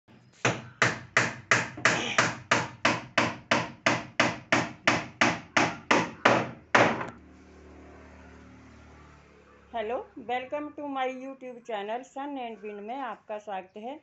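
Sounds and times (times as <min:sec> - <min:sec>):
hammering nails into wood: 0:00.4 - 0:07.2.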